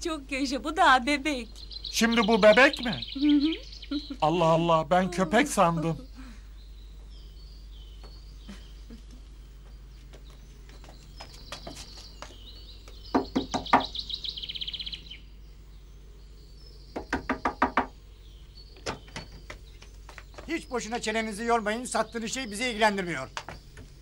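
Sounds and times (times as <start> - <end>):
birds chirping: 0.0 - 24.0
knocking on wooden door: 13.1 - 13.9, 16.9 - 18.0.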